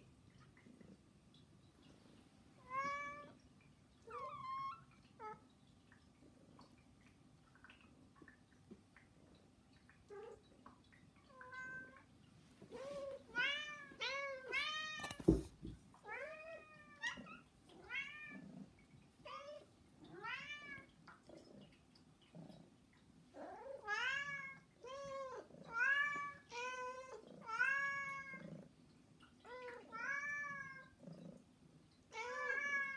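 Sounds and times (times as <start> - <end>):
thump: 15.1 - 15.8.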